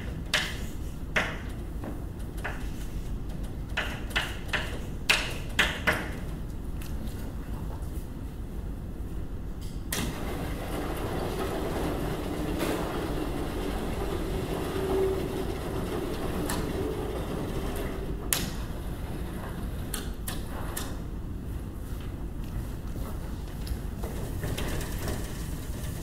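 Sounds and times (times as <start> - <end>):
sliding panels rolling rumble: 10.0 - 22.0, 23.0 - 26.0.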